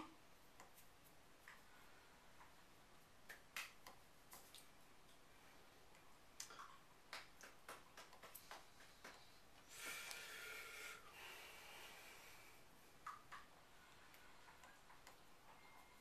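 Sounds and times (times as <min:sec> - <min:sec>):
hands clicking and tapping: 0:03.2 - 0:04.7, 0:06.4 - 0:09.4.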